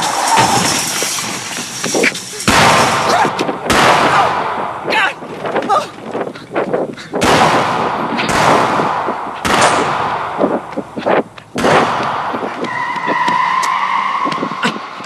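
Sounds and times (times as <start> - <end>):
loud bangs with rushing noise: 2.4 - 5.6, 7.2 - 12.7.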